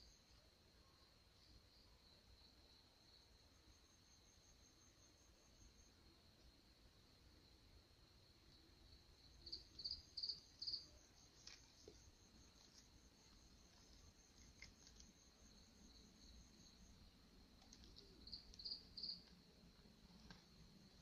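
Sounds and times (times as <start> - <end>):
loud cricket chirps: 0.0 - 21.0
crickets trilling: 7.4 - 21.0.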